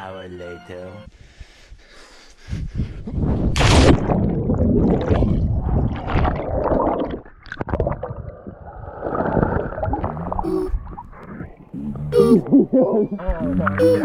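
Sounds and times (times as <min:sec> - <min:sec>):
underwater rumbling and bubbling: 0:03.0 - 0:13.8
splash into water: 0:03.5 - 0:07.8.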